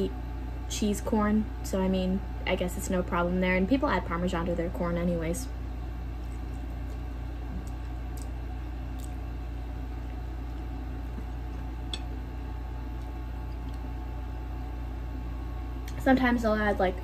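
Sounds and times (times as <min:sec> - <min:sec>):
low background hum: 0:00.0 - 0:17.0
person chewing noodles: 0:06.2 - 0:14.1.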